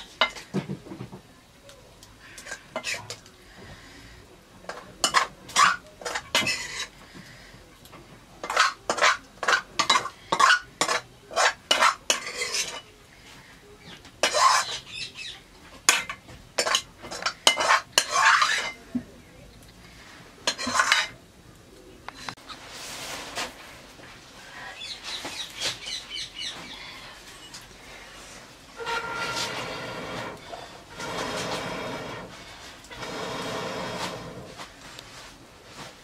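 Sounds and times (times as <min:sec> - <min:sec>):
metal ladle scraping a pot: 0:02.4 - 0:03.2, 0:04.7 - 0:07.0, 0:08.4 - 0:12.9, 0:14.2 - 0:14.9, 0:15.9 - 0:18.8, 0:20.4 - 0:21.2, 0:28.8 - 0:34.6.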